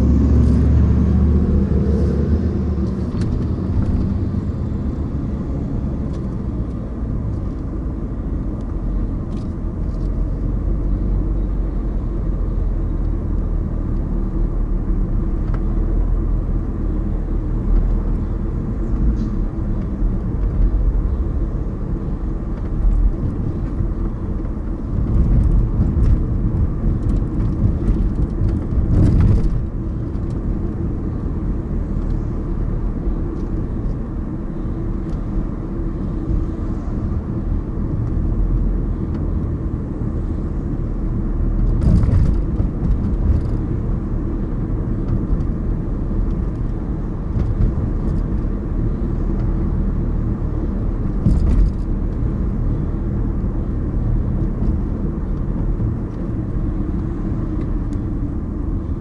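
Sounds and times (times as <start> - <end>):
car engine and tyre road noise: 0.0 - 59.0.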